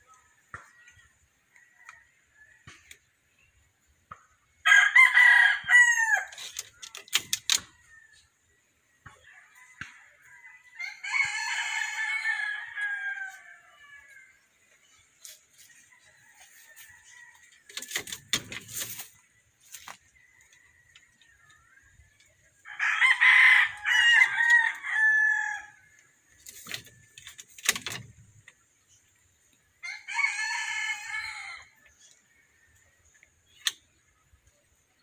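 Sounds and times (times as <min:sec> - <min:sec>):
rooster crowing: 0:04.6 - 0:06.4, 0:09.5 - 0:14.4, 0:22.6 - 0:26.0, 0:29.8 - 0:31.8
knocks and rustles: 0:16.4 - 0:21.1, 0:26.4 - 0:28.6.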